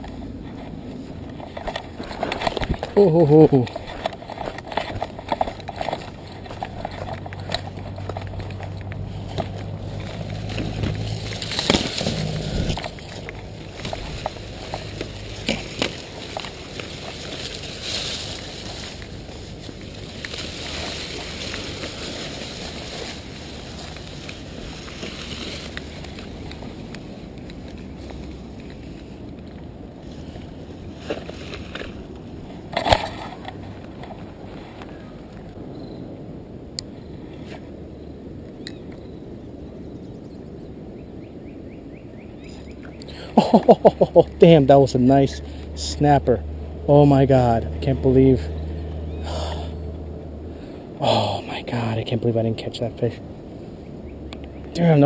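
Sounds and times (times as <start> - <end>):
footsteps on dirt path: 0.0 - 35.6
dry grass rustling: 0.0 - 35.7, 40.8 - 55.0
wind rumble on microphone: 3.6 - 43.0.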